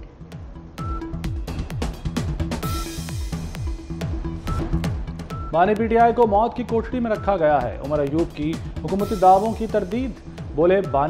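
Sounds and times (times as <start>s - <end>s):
electronic background music: 0.0s - 11.0s.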